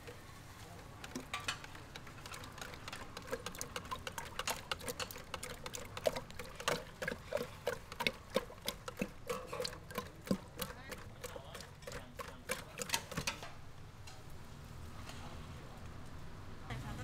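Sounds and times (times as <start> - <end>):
whisk clicking against plastic jar: 1.0 - 13.4.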